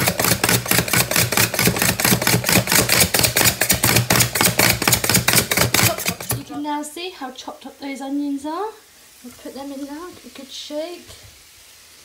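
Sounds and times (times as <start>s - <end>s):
food chopper chopping onion: 0.0s - 6.5s.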